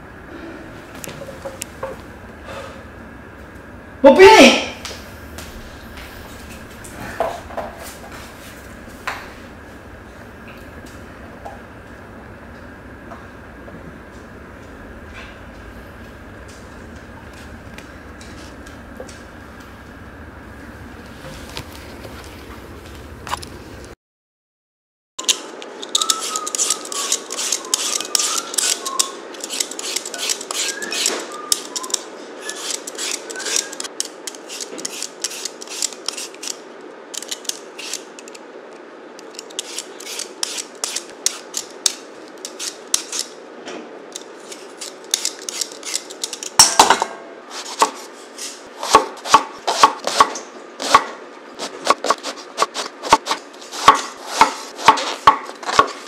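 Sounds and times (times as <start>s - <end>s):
peeler scraping potatoes: 25.8s - 38.4s, 39.2s - 43.4s, 44.2s - 46.6s, 47.5s - 56.0s
knife chopping on cutting board: 48.8s - 56.0s.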